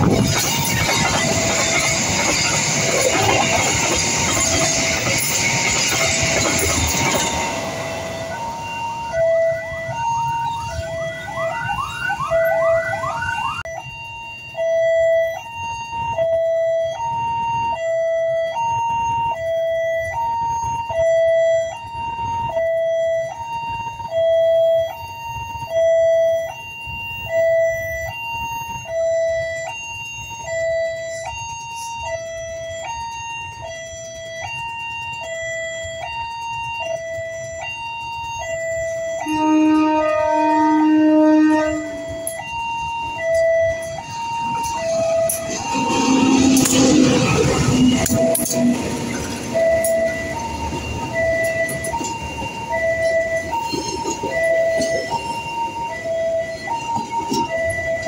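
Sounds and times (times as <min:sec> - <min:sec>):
level crossing alarm: 0:00.0 - 0:58.0
freight wagons rolling past: 0:42.9 - 0:58.0.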